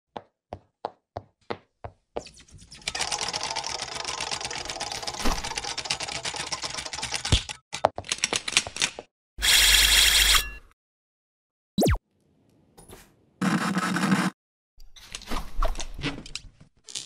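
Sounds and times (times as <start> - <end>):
rapid mechanical clatter: 2.9 - 7.6.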